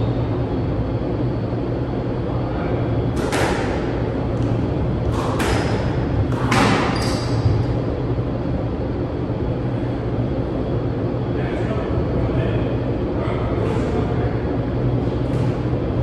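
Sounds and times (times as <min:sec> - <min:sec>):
steady low hum: 0:00.0 - 0:16.0
squash ball hit by rackets: 0:03.1 - 0:07.6.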